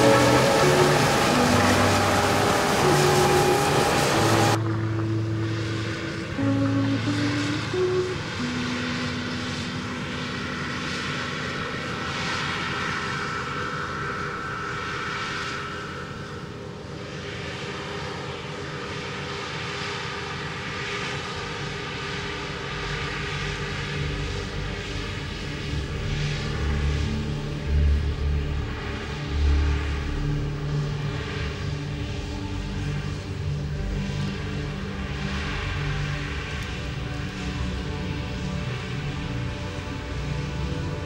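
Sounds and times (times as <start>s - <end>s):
low rumble: 0.0s - 17.3s
combine harvester engine drone: 0.0s - 41.0s
held whine: 0.0s - 41.0s.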